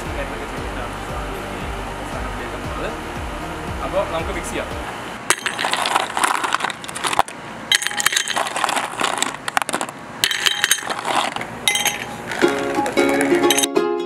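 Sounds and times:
ice cubes clinking in glass: 5.3 - 12.6.

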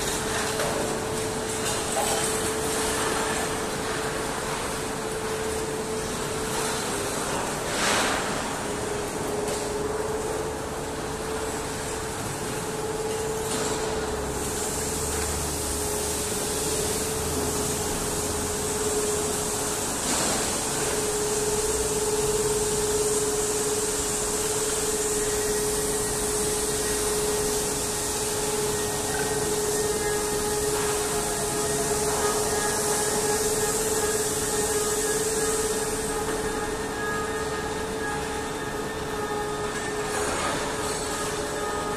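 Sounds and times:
machinery hum: 0.0 - 41.9
machinery hiss: 14.1 - 41.9.

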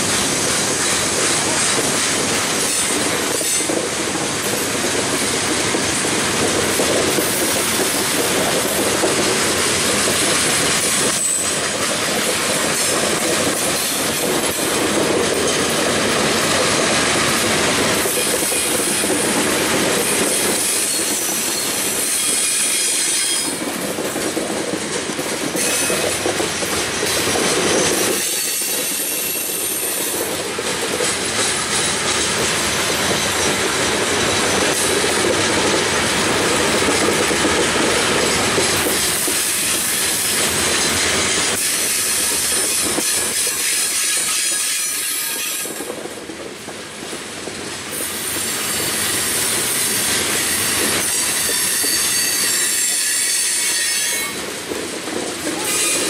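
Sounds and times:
freight train wheels rumbling: 0.0 - 56.0
wheel squeal: 11.1 - 11.6, 49.0 - 54.4.

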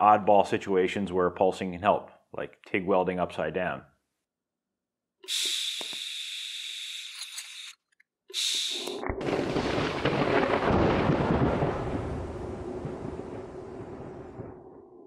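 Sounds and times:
welder high-pitched hiss: 5.3 - 7.8, 8.4 - 9.0.

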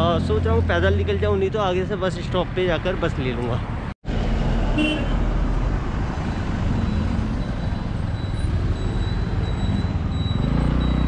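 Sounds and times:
steady traffic hum: 0.0 - 11.0
bus passing: 4.0 - 11.0.

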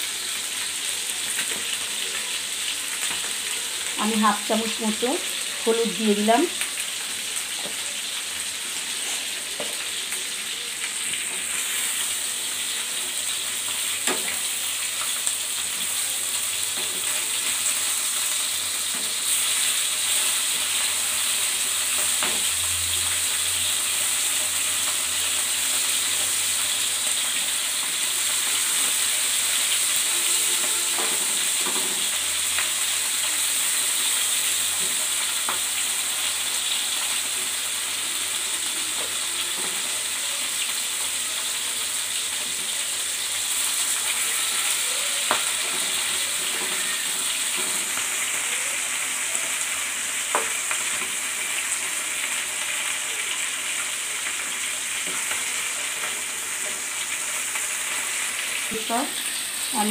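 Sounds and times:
fish sizzling in hot oil: 0.0 - 59.9.

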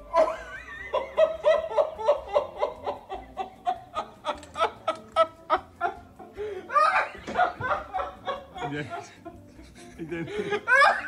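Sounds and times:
man laughing hard: 0.0 - 6.0, 9.8 - 11.0.

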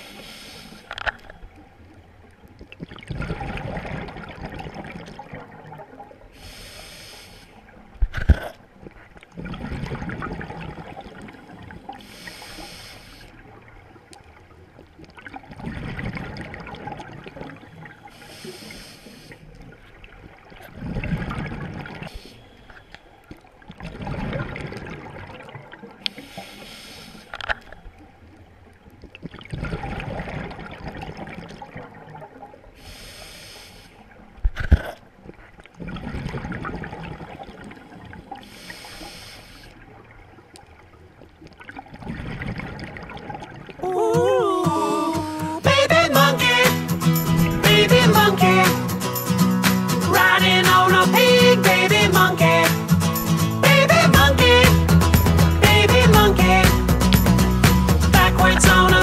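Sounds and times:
hissing inhale through regulator: 0.0 - 0.9, 6.3 - 7.7, 12.0 - 13.4, 18.0 - 19.5, 22.1 - 22.7, 26.1 - 27.4, 32.8 - 34.1, 38.4 - 39.8
gurgling rush of exhaled bubbles: 2.8 - 6.0, 9.3 - 12.0, 15.2 - 17.6, 23.8 - 25.7, 29.2 - 32.2.

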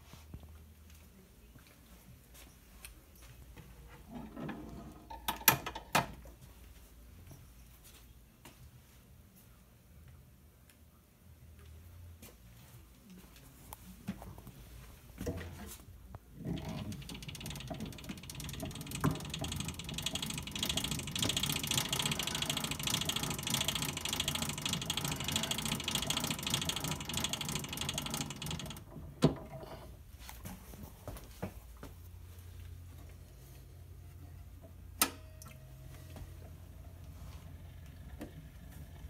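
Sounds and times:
spring motor winding ratchet: 16.5 - 28.9.

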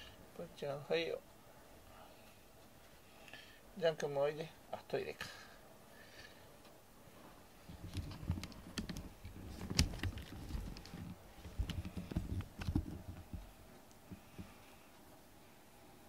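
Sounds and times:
soft thumps: 9.5 - 14.6.

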